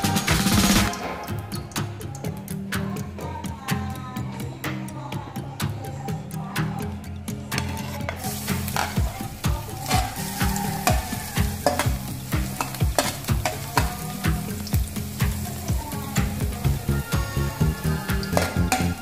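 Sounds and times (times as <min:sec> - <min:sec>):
garlic sizzling in hot oil: 0:08.2 - 0:19.0
spatula scraping a wok: 0:09.8 - 0:14.0.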